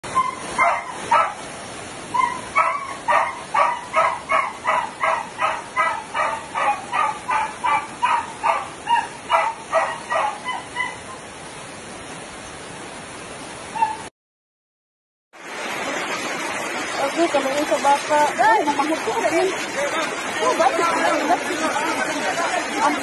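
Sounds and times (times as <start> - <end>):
dog barking: 0.2 - 1.4, 2.2 - 11.0.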